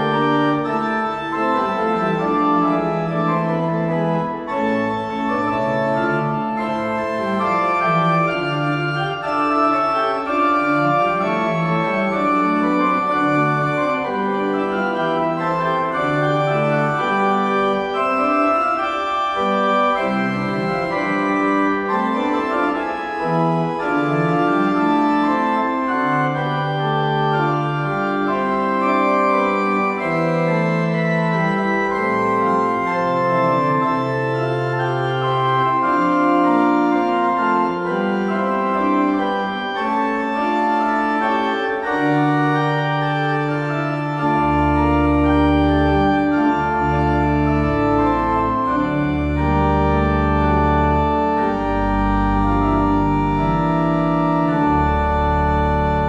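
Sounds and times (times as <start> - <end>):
church organ chords: 0.0 - 56.0
deep organ bass notes: 0.0 - 56.0.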